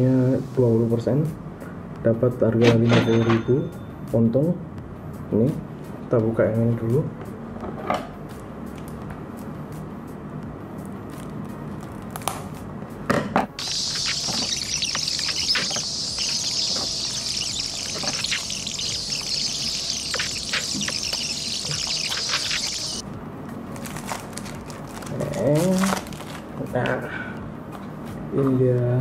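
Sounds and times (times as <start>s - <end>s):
fast-forward hiss with clicks: 13.6s - 23.0s.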